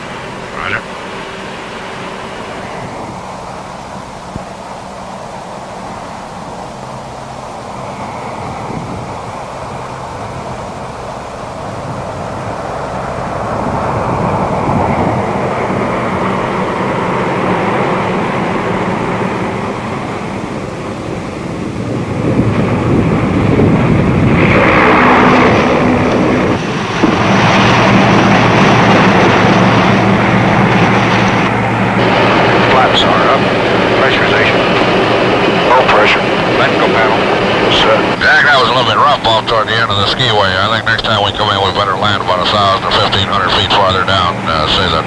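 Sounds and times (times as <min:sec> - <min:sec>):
turboprop aircraft drone: 0:00.0 - 0:45.0.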